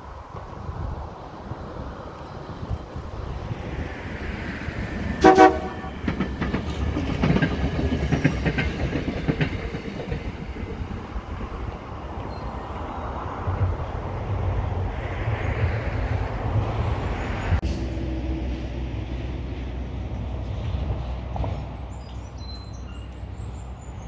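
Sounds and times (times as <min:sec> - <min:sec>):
train rumble: 0:00.0 - 0:24.0
train wheels clicking on track: 0:02.1 - 0:12.8
train horn blast: 0:05.2 - 0:06.0.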